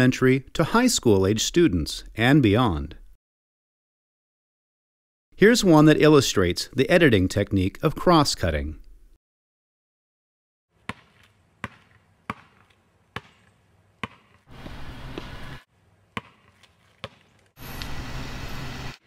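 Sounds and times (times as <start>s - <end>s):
basketball bouncing on asphalt: 10.7s - 17.5s.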